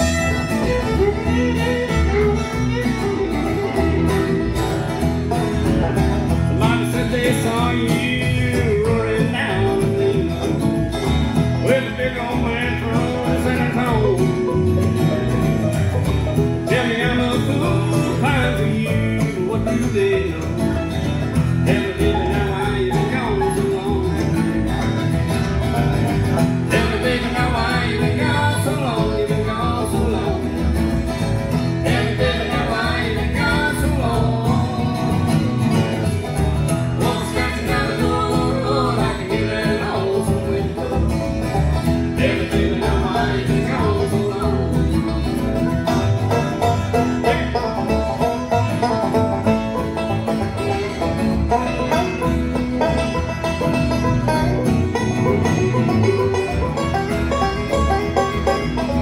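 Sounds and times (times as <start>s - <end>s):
acoustic guitar: 0.0s - 59.0s
banjo: 0.0s - 59.0s
upright bass: 0.0s - 59.0s
man singing lead: 6.6s - 10.6s, 11.6s - 14.8s, 16.6s - 24.7s, 26.7s - 30.6s, 31.8s - 36.1s, 37.0s - 45.4s, 46.9s - 48.0s, 50.4s - 52.3s.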